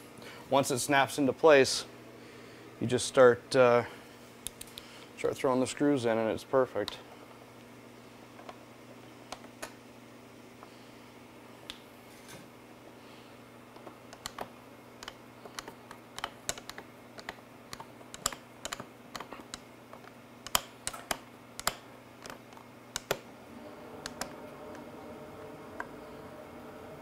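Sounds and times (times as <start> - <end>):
steady hum: 0.0 - 27.0
screwdriver clicks and taps: 13.8 - 23.2.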